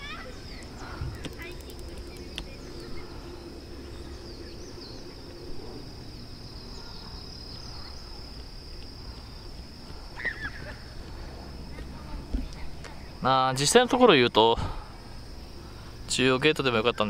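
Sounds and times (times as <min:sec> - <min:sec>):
bird chirps: 0:00.0 - 0:08.2
high-pitched insect trill: 0:00.0 - 0:17.0.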